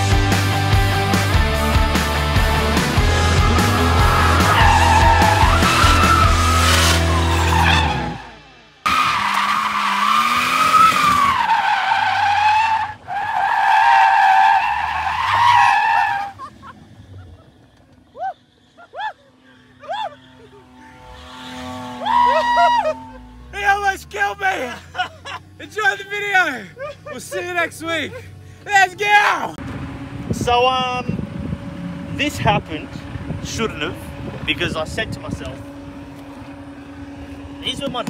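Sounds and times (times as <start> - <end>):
background music: 0.0 - 8.1
car engine running: 0.0 - 13.4, 14.9 - 38.0
tyres squealing: 2.6 - 16.6, 17.9 - 29.6
short tyre chirps: 2.6 - 27.1.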